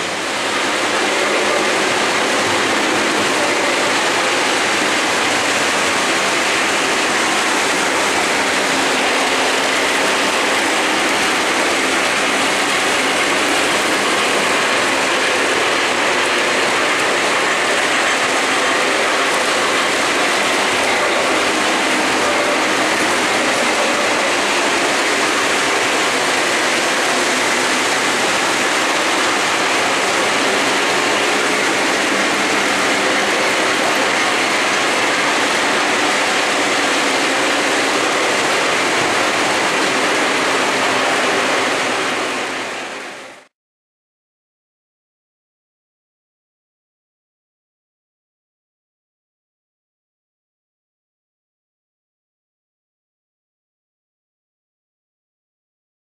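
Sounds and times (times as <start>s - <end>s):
model train wheels rolling on track: 0.0s - 43.5s.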